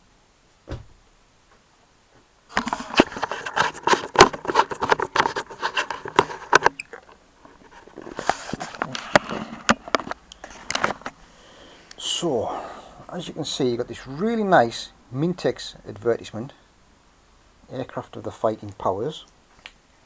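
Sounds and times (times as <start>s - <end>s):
rustling and scraping: 0.7s - 11.2s.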